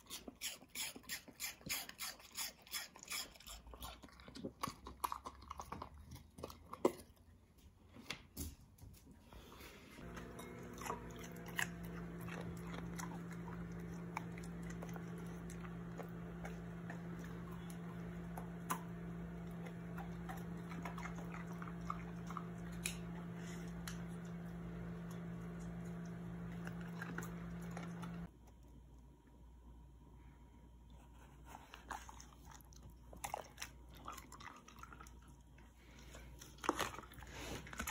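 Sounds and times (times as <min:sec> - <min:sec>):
dog crunching cucumber: 0:00.0 - 0:08.1, 0:10.0 - 0:24.3, 0:31.5 - 0:37.9
steady low hum: 0:10.0 - 0:28.3.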